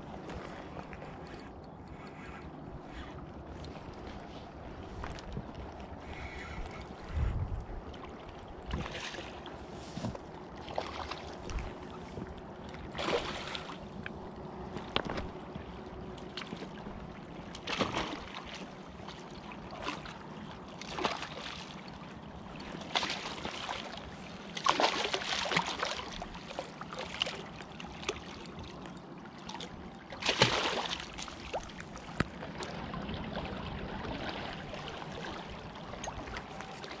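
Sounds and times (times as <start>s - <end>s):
river water washing: 12.8s - 37.0s
fish splashing at the surface: 24.6s - 26.2s, 30.2s - 31.7s.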